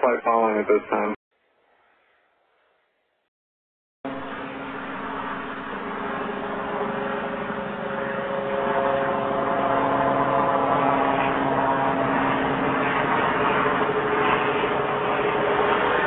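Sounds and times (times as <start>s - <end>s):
helicopter drone: 4.0s - 16.0s.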